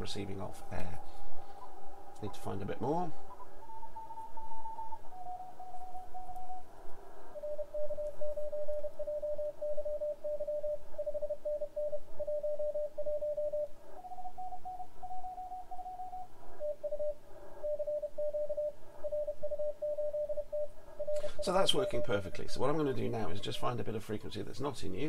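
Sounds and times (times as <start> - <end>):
higher pitched morse code tone: 0.0 - 6.7, 7.3 - 25.0
morse code beeping tone: 7.4 - 23.5.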